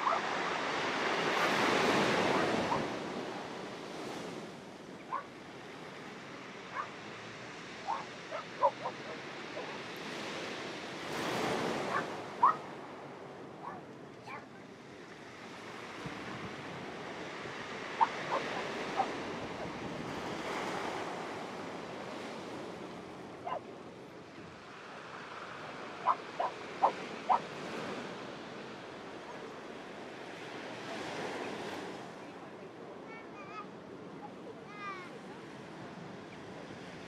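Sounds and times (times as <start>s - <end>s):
wind on microphone: 0.0s - 14.4s, 15.6s - 23.6s
surf washing over rocks: 0.0s - 37.0s.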